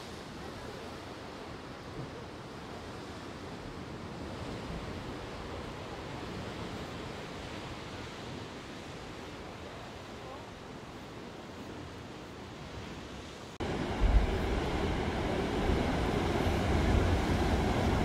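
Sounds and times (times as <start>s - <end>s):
ocean surf breaking on rocks: 11.8s - 18.0s.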